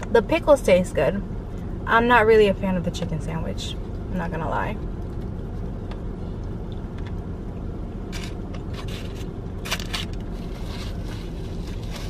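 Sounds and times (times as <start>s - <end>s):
steady low rumble: 0.0s - 12.0s
crisp crunching: 8.2s - 12.0s.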